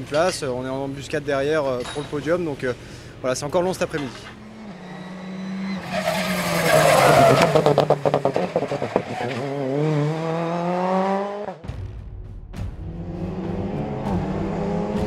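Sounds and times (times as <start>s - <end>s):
low engine rumble: 0.0s - 6.1s
rally car engine at full throttle: 2.5s - 11.6s, 12.7s - 15.0s.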